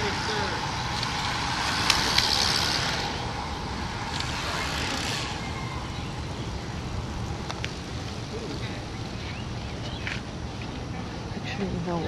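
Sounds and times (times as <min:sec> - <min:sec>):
bicycle tyres and freewheels whirring: 0:00.0 - 0:11.2
steady low rumble: 0:00.0 - 0:12.0.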